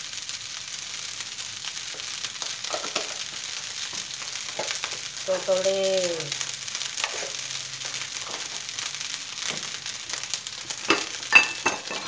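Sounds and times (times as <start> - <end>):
rice sizzling in a wok: 0.0 - 12.0.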